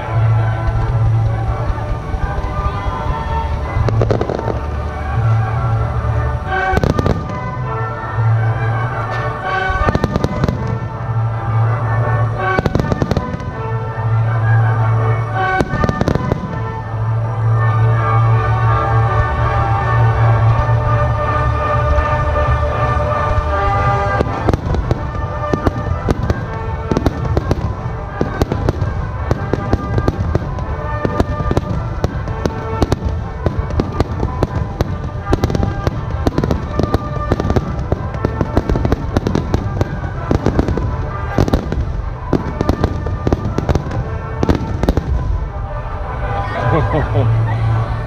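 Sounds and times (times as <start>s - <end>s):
continuous low rumble: 0.0s - 48.0s
firework shells bursting: 24.0s - 45.5s.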